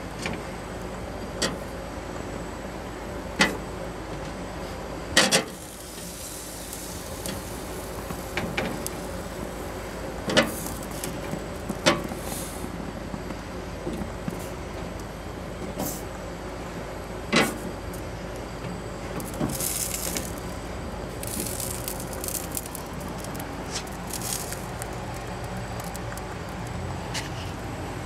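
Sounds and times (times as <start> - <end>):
chiles sizzling on grill: 5.2 - 15.6, 16.4 - 27.8.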